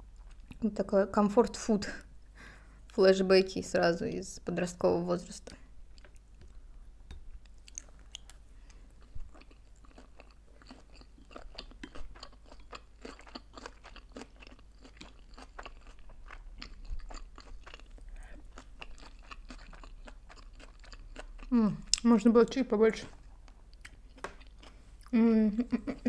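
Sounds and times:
person chewing close to microphone: 0.1s - 0.6s, 5.9s - 22.1s, 23.2s - 25.2s.

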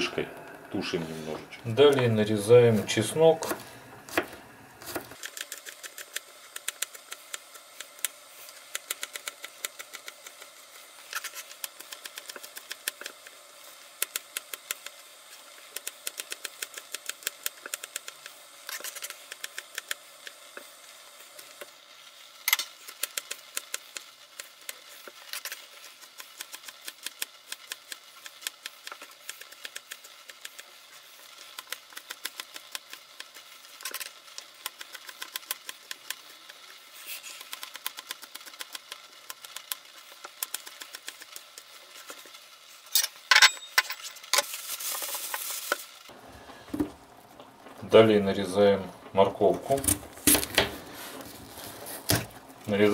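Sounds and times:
knife chopping on cutting board: 3.4s - 5.2s.

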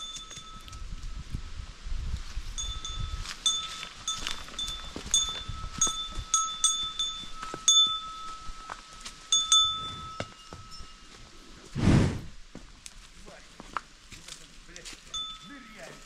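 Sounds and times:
small metal bell ringing: 0.0s - 1.2s, 2.6s - 11.3s, 15.1s - 16.0s
rush of noise: 11.8s - 12.4s.

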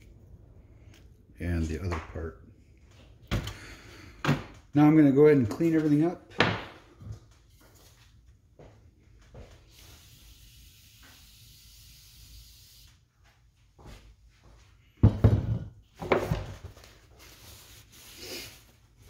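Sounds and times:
clunks and knocks of parts: 3.2s - 3.6s
spraying hiss: 9.7s - 12.9s.

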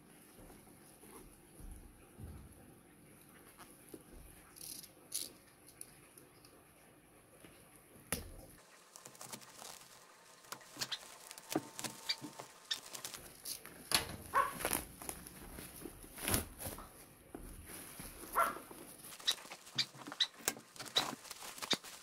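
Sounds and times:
plastic packaging crinkling: 8.6s - 17.0s, 17.6s - 22.0s
card tearing: 8.9s - 15.3s, 19.1s - 22.0s.

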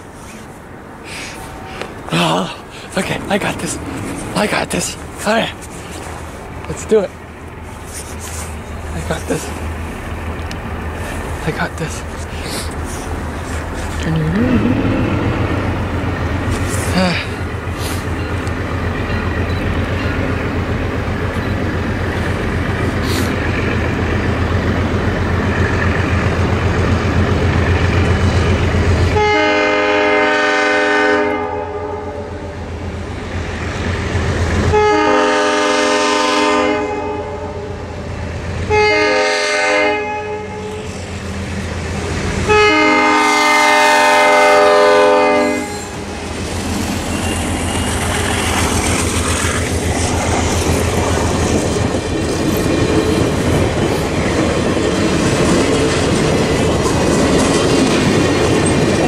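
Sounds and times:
locomotive rumbling: 0.0s - 30.6s, 32.2s - 59.0s
train horn: 29.1s - 32.4s, 34.7s - 37.7s, 38.7s - 40.9s, 42.4s - 46.0s.

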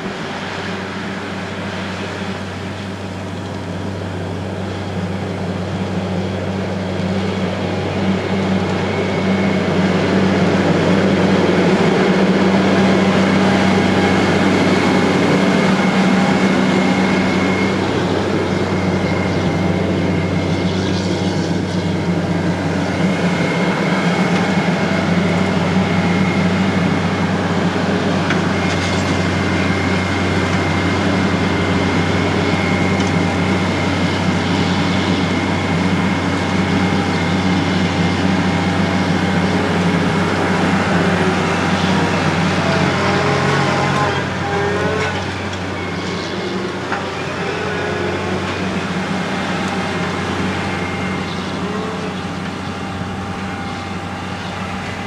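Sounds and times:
diesel engine running under load: 0.0s - 55.0s
thin high whine: 0.0s - 55.0s.

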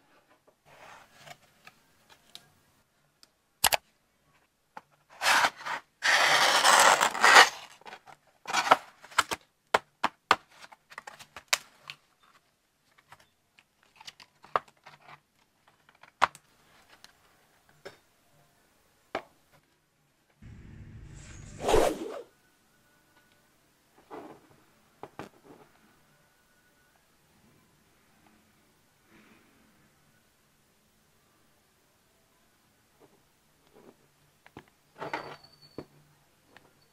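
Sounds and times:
packaging tearing: 5.2s - 7.8s.

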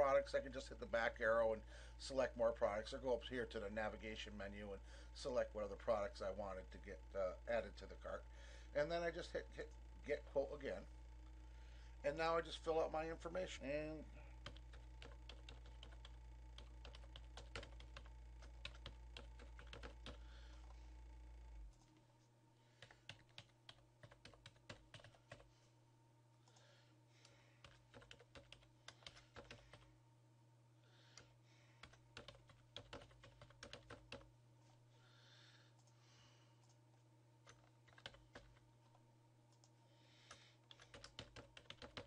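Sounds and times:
steady low hum: 0.0s - 42.0s
faint keyboard typing: 14.3s - 22.0s, 22.8s - 25.5s, 26.4s - 29.9s, 31.1s - 34.3s, 36.6s - 42.0s.

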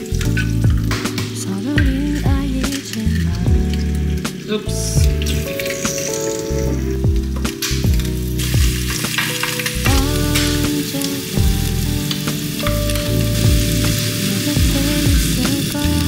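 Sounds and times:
background music: 0.0s - 16.0s
egg sizzling in a pan: 5.3s - 6.8s, 7.6s - 16.0s.

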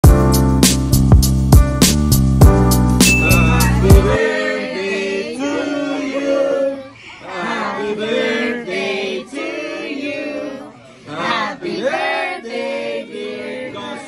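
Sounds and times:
upbeat intro music: 0.0s - 4.2s
group of voices singing: 3.1s - 14.0s.

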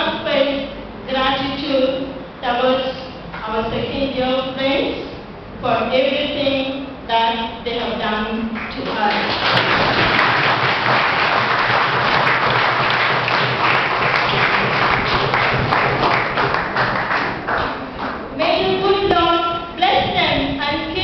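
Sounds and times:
audience applauding: 8.9s - 18.2s.

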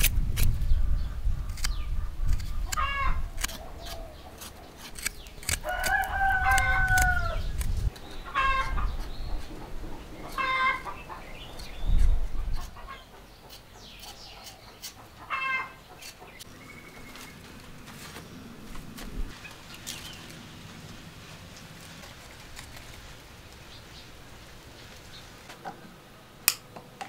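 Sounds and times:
low rumbling: 0.0s - 13.2s, 16.4s - 26.3s
chickens calling: 0.7s - 26.1s
rooster crowing: 5.6s - 7.5s, 8.4s - 8.8s, 10.4s - 10.9s, 15.3s - 15.8s.

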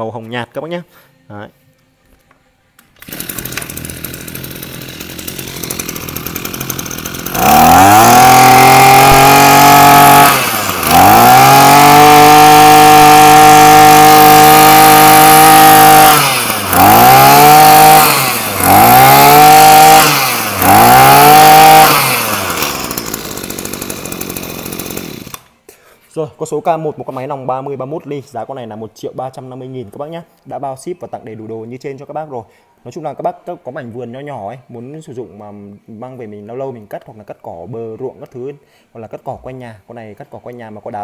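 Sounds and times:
brushcutter engine revving: 3.0s - 25.5s.

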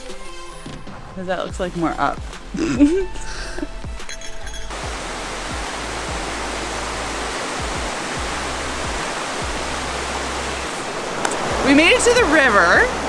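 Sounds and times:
low drum beat music: 0.9s - 12.4s
waterfall rushing over rocks: 4.5s - 13.0s.

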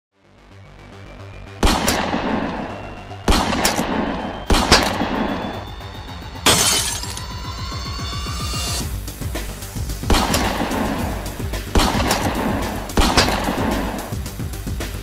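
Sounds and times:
glass shattering: 6.4s - 7.4s
intro music: 7.7s - 15.0s.

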